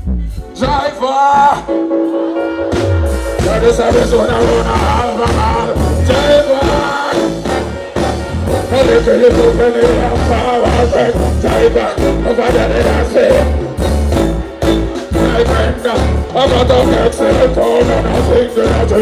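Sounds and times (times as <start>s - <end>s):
live band playing: 0.0s - 19.0s
man singing into a microphone: 0.5s - 1.8s, 3.4s - 7.8s, 8.6s - 13.7s, 15.0s - 19.0s.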